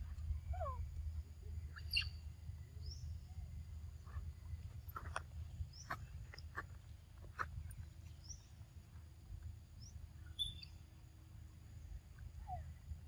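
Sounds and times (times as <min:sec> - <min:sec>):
short high bird chirps: 0:01.8 - 0:02.2, 0:10.4 - 0:10.8.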